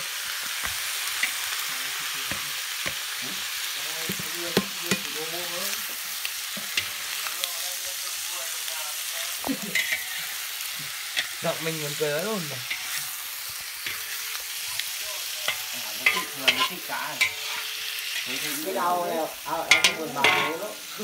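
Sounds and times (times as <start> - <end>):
food sizzling in hot oil: 0.0 - 21.0
spatula scraping a wok: 4.5 - 7.4, 9.2 - 21.0.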